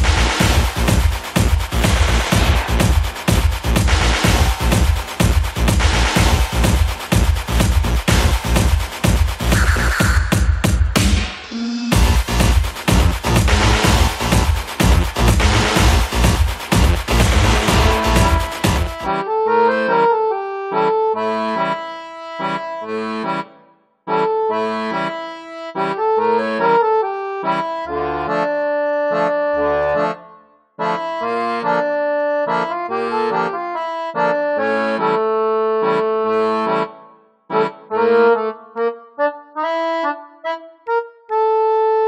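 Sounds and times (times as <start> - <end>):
electronic dance music: 0.0 - 19.2
bouncy melodic tune with bass: 0.0 - 42.0.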